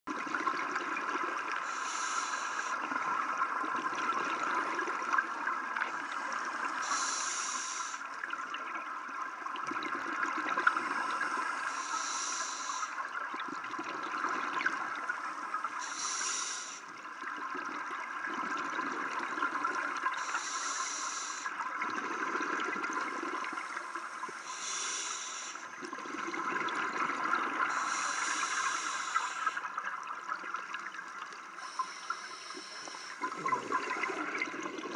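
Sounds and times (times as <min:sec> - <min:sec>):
underwater hum: 0:00.1 - 0:34.9
regulator breathing hiss: 0:01.6 - 0:02.9, 0:06.7 - 0:08.1, 0:10.9 - 0:13.0, 0:15.2 - 0:16.9, 0:20.2 - 0:21.6, 0:23.7 - 0:25.7, 0:27.7 - 0:29.7, 0:31.6 - 0:33.3
exhaled bubbles rumbling: 0:17.3 - 0:20.1, 0:25.7 - 0:28.0, 0:33.2 - 0:34.9.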